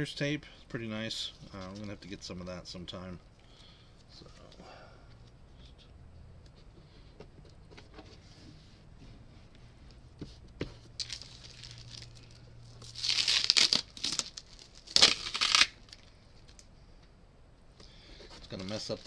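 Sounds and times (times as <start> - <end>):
tape tearing off: 11.0 - 16.6.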